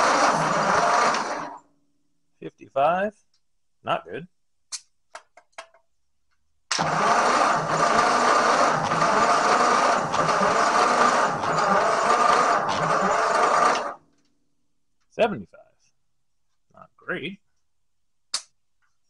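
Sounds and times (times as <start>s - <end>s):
starter motor cranking engine: 0.0s - 1.6s, 6.7s - 14.0s.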